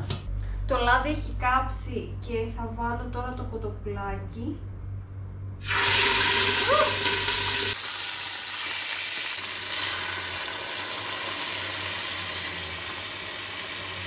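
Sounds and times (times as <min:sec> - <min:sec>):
beer hissing in hot pot: 0:05.6 - 0:14.0
chicken sizzling in oil: 0:05.6 - 0:14.0.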